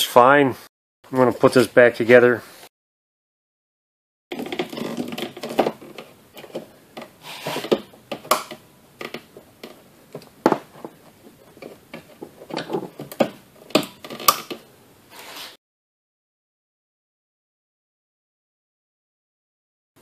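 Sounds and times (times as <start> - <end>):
parts rubbing and scraping: 4.3 - 15.6.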